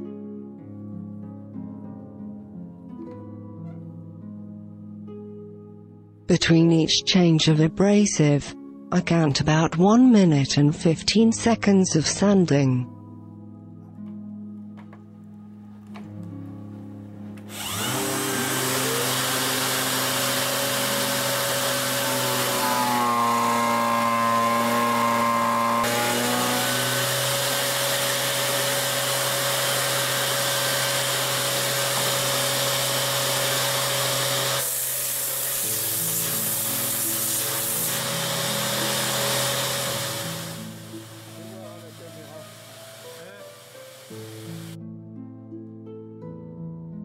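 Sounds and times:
electric sander whining: 0:17.5 - 0:44.8
wood sanding on abrasive disc: 0:17.5 - 0:44.8.

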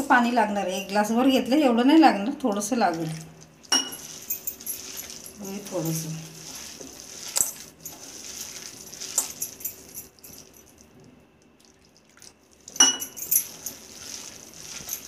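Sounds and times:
water pouring: 0:02.7 - 0:15.0
glass bangles clinking: 0:03.6 - 0:10.9, 0:12.7 - 0:15.0
sharp clink: 0:12.8 - 0:13.5.

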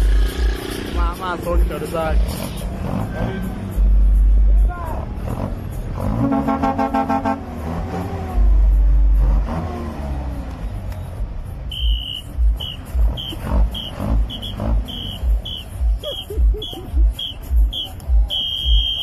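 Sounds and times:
vehicle horn: 0:06.1 - 0:07.7, 0:11.7 - 0:19.0.

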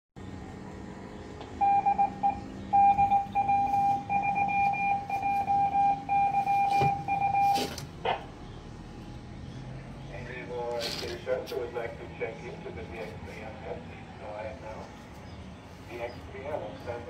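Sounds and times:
morse code beeps: 0:01.6 - 0:07.7.

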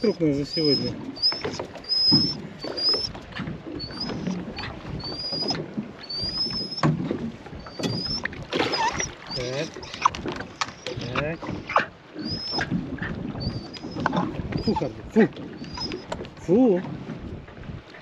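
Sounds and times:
dog whining in high squeals: 0:00.0 - 0:03.2, 0:03.8 - 0:06.9, 0:07.6 - 0:11.0, 0:12.2 - 0:12.7, 0:13.4 - 0:14.9, 0:15.6 - 0:16.1.

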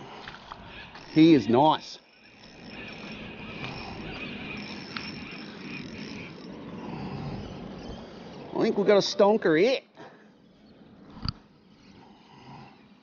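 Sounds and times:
fishing reel whirring: 0:00.4 - 0:09.6.

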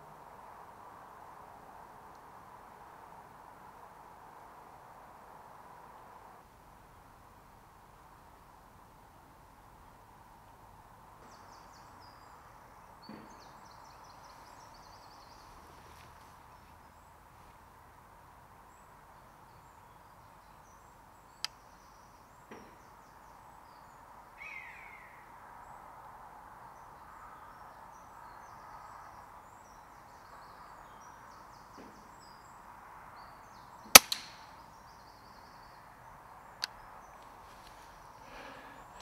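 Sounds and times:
air rifle shot crack: 0:33.9 - 0:34.4
pellet striking target: 0:34.0 - 0:34.4.

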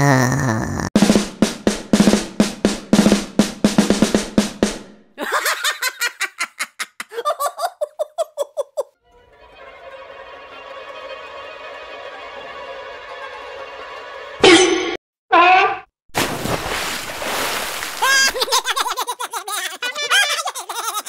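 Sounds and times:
drums played fast: 0:01.0 - 0:05.1.

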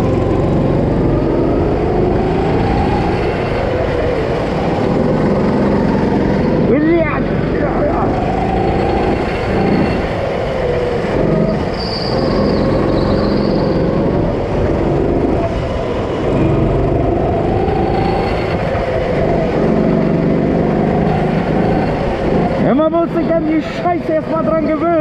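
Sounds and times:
go-kart engine revving: 0:00.0 - 0:25.0
high squeal: 0:07.8 - 0:14.6, 0:17.2 - 0:20.2.

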